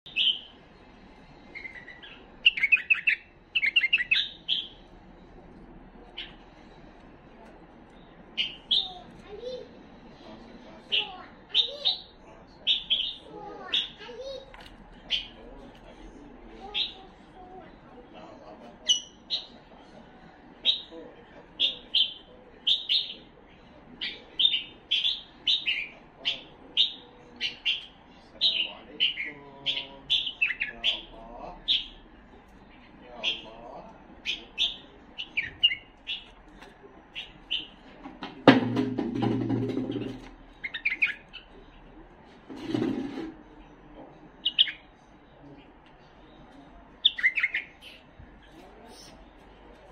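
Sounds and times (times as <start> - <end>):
bird chirping: 0.1 - 0.6, 1.3 - 5.0, 7.9 - 9.6, 10.8 - 14.0, 21.6 - 37.8, 39.4 - 42.0, 44.0 - 49.4.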